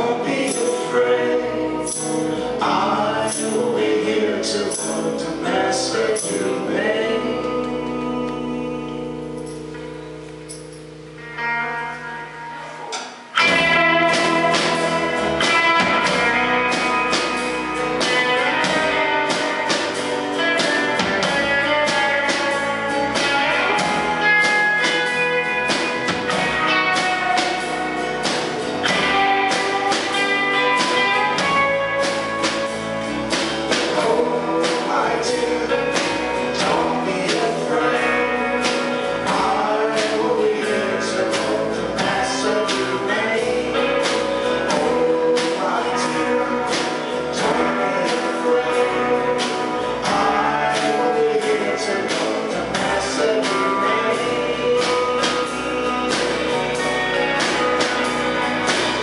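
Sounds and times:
person singing: 0.0 - 9.7, 12.0 - 59.0
drums: 0.0 - 59.0
electric bass: 0.0 - 59.0
strummed acoustic guitar: 0.0 - 59.0.

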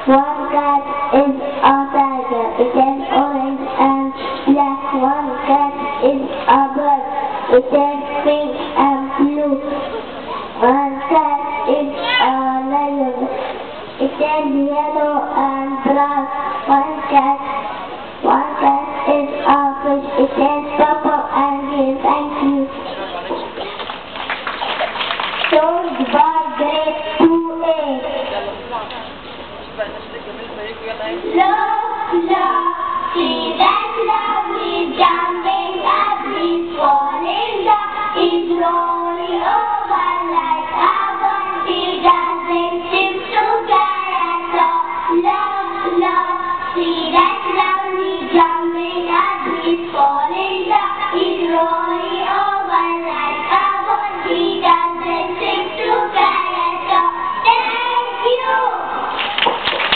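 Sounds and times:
girls singing into a microphone: 0.0 - 23.6, 25.5 - 28.3, 31.3 - 59.4.

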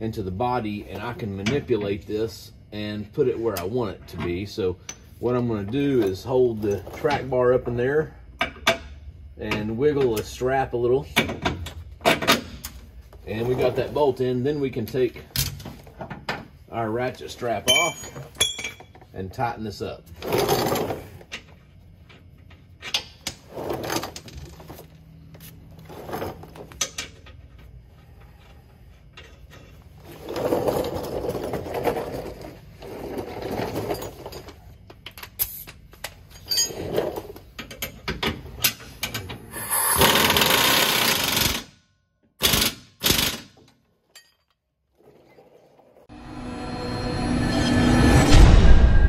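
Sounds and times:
rush of noise: 46.1 - 49.0.

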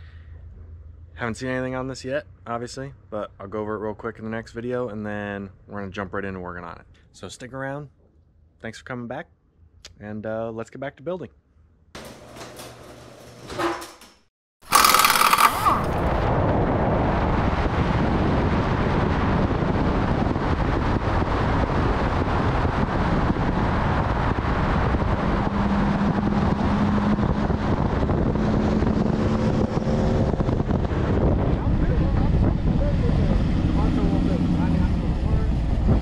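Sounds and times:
wind and road noise: 14.7 - 36.0.

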